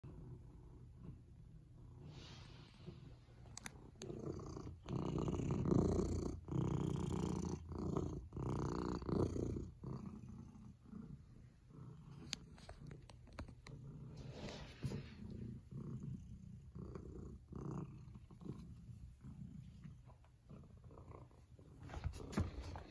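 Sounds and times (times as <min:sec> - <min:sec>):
cat purring: 0:00.0 - 0:22.9.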